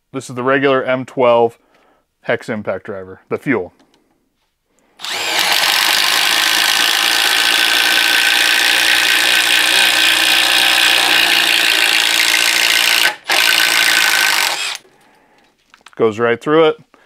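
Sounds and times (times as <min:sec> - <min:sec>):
impact driver hammering: 0:05.0 - 0:14.8.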